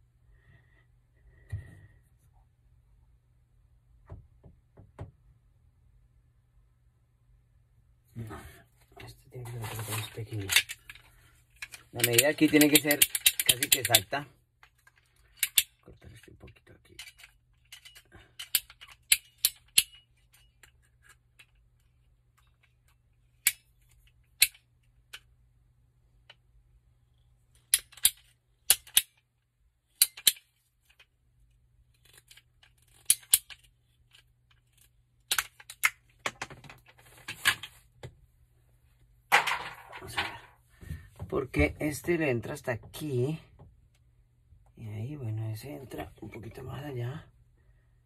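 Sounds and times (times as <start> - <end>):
pipe cutter clicks and snaps: 11.6 - 14.1, 15.4 - 15.8, 27.7 - 29.2, 30.0 - 31.0, 32.1 - 33.7, 34.8 - 36.0.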